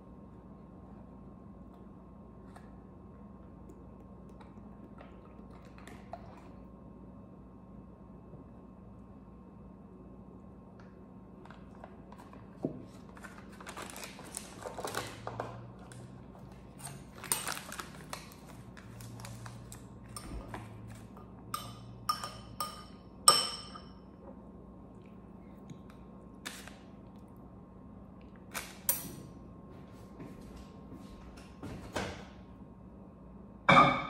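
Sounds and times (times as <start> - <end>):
faint steady hum: 0.0 - 34.0
metal clinking against bowl: 21.5 - 24.0.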